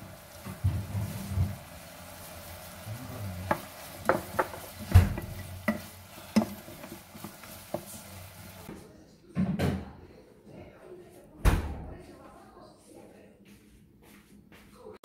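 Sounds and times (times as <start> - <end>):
low sizzle: 0.0 - 8.7
spatula stirring in pot: 0.0 - 8.7
spatula knocking against pot: 3.5 - 7.9.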